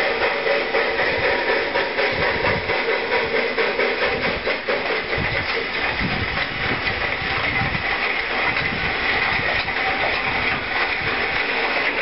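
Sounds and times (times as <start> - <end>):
locomotive exhaust beats: 0.0 - 12.0.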